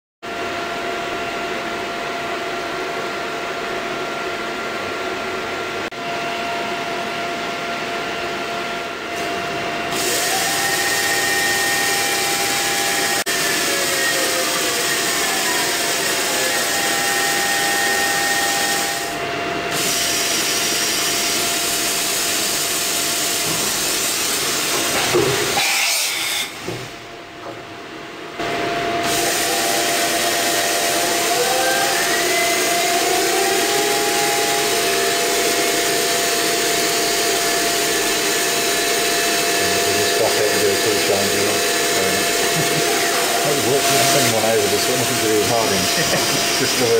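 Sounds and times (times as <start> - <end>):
machine hiss and hum: 0.3 - 27.2, 28.1 - 46.9
motor whine changing pitch: 5.8 - 21.4, 28.4 - 46.9.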